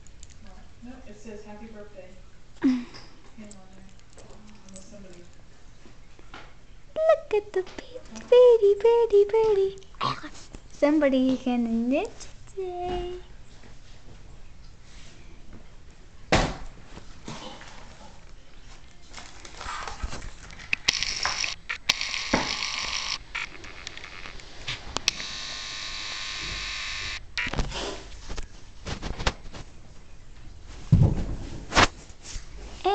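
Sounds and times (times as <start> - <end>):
microphone rubbing and rustling: 27.4 - 32.8.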